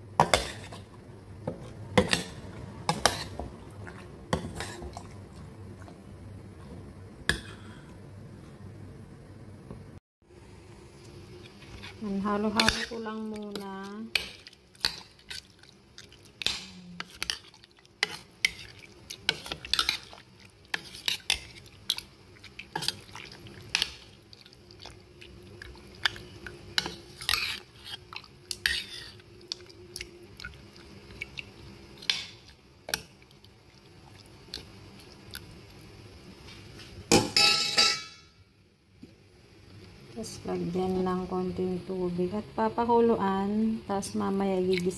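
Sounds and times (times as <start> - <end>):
spoon clinking and scraping pot: 37.2 - 38.3.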